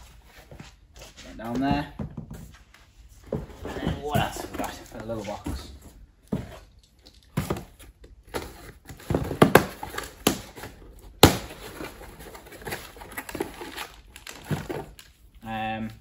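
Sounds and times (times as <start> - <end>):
cardboard rustling: 0.0 - 6.7, 7.3 - 15.3
cardboard box knocks and clicks: 7.4 - 11.9.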